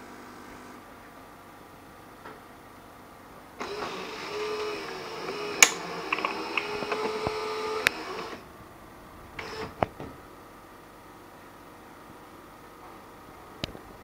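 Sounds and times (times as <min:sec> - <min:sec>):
espresso machine motor whirring: 0:03.6 - 0:08.5
sharp click: 0:05.6 - 0:07.1.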